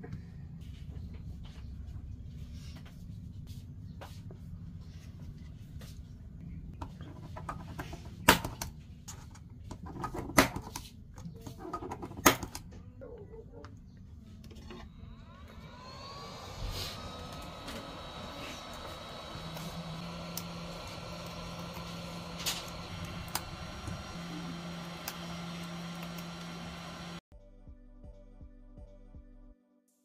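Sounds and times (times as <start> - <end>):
steady low hum: 12.7 - 27.2.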